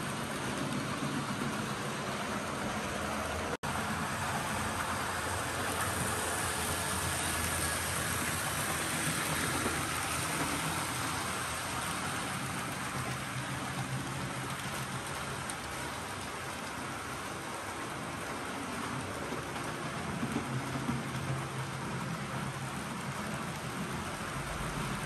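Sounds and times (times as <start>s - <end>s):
locomotive motor hum: 0.0s - 17.2s
model train wheels on rails: 0.0s - 25.0s.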